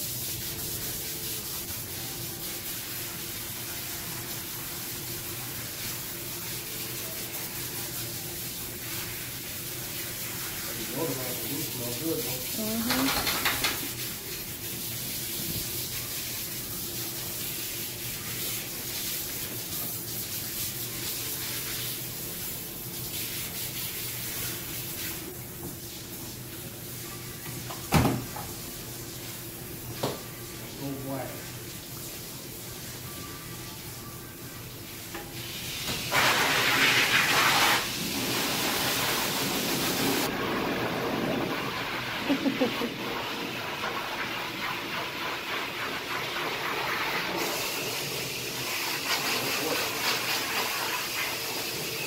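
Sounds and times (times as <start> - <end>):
water running from sprayer hose: 0.0 - 52.0
hose spray hissing: 35.1 - 40.4, 46.5 - 52.0.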